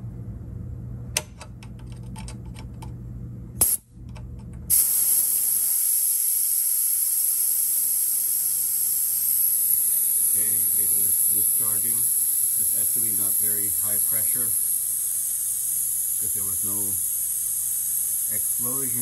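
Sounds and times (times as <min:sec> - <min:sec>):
compressed air hissing: 0:03.6 - 0:03.8, 0:04.7 - 0:19.0.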